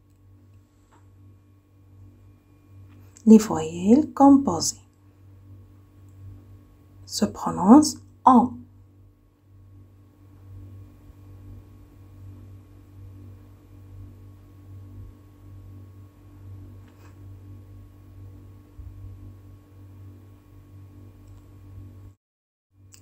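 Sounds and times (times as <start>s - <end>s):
low electrical hum: 0.0s - 22.2s
faint click: 21.2s - 21.5s.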